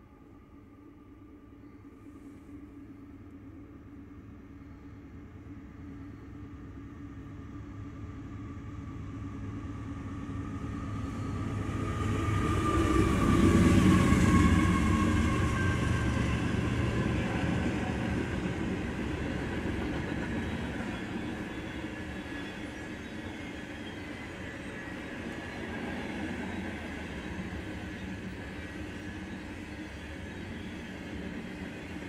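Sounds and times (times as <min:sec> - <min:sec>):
diesel locomotive engines passing: 0:00.0 - 0:32.0.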